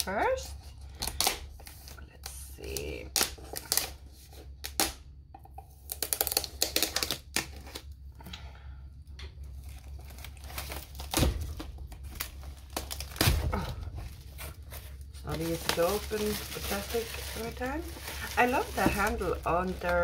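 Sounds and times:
shrink wrap crackling: 5.8s - 8.0s, 9.4s - 20.0s.

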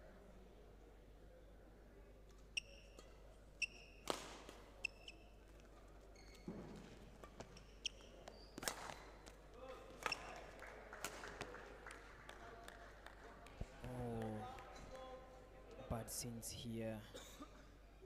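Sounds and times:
shoes squeaking on court floor: 2.6s - 9.4s, 10.0s - 10.4s.

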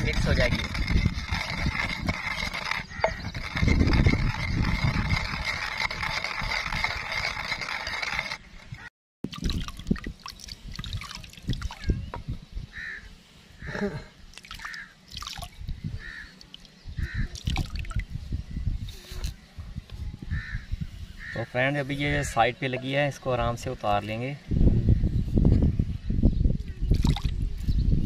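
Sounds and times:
scrapes and knocks on pestle: 0.0s - 8.4s
pestle grinding wet paste: 0.0s - 8.5s.

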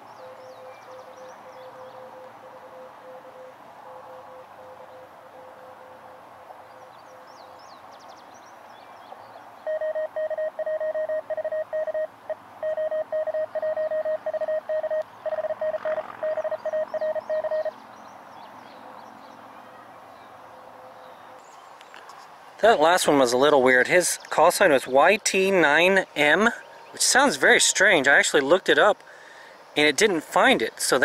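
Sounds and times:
birds chirping: 6.6s - 31.0s
faint low morse signal: 9.7s - 17.8s
morse code tone: 9.7s - 17.8s.

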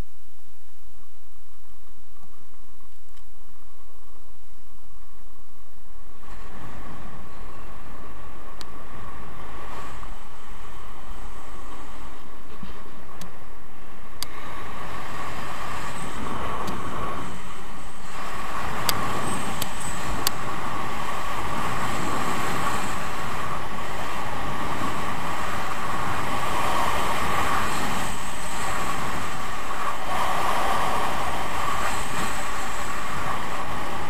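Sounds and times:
wind on microphone: 0.0s - 34.0s
skis scraping over snow: 6.1s - 34.0s.

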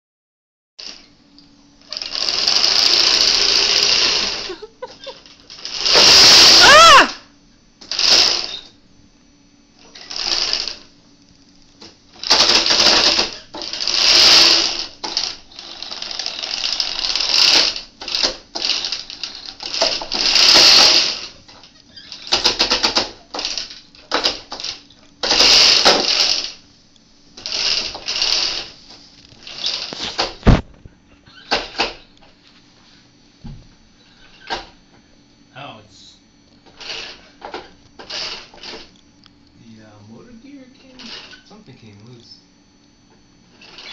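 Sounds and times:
electric motors whining: 0.8s - 43.9s
roller chain clattering: 12.2s - 26.6s.

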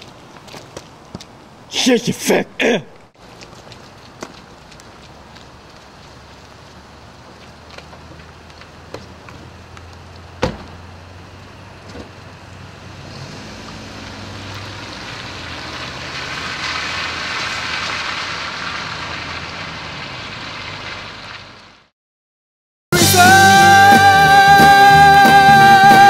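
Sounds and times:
car pulling away on wet pavement: 3.2s - 21.9s
car door slamming: 10.4s - 10.8s.

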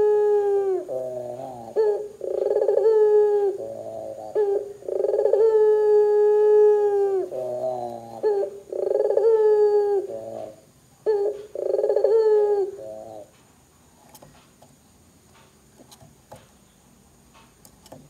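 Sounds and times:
dove cooing: 0.0s - 13.4s.

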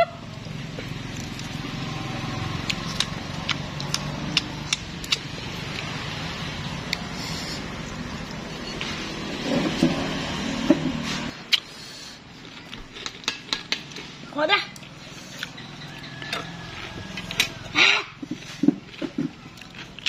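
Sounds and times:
chewing crunchy cucumber: 0.4s - 10.6s, 11.3s - 20.0s
wet mouth clicks: 2.7s - 5.9s, 11.5s - 11.7s.

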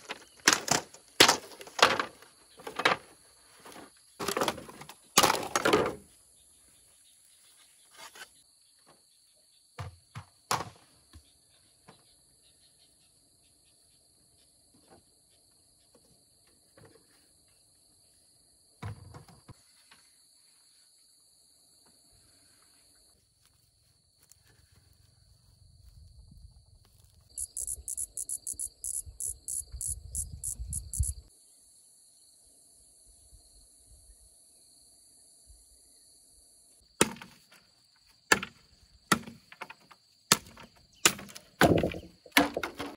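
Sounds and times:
insects droning: 8.4s - 42.9s
pulsed insect call: 27.3s - 36.8s.

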